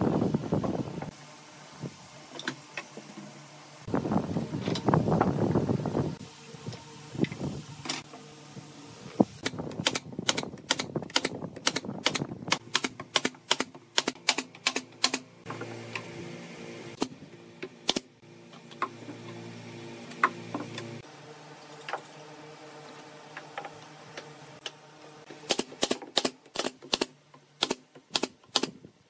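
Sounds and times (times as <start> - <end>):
nail gun firing: 9.4 - 15.3, 25.4 - 28.8.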